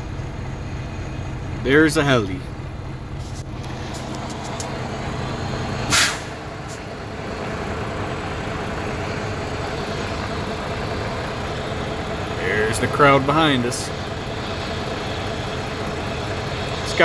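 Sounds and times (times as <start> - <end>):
vehicle engine idling: 0.0 - 17.0
short hiss: 5.9 - 6.8.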